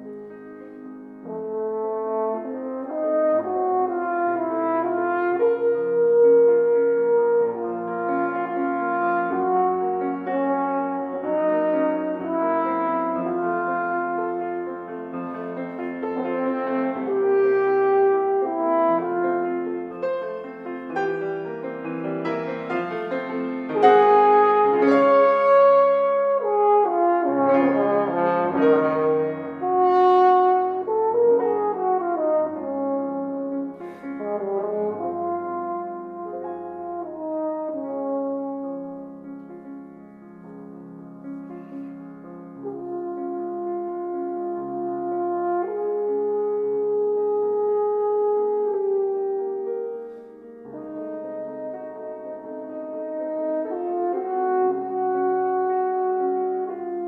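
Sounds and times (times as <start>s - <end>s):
french horn slow melody: 0.0s - 57.0s
piano accompaniment: 0.0s - 57.0s.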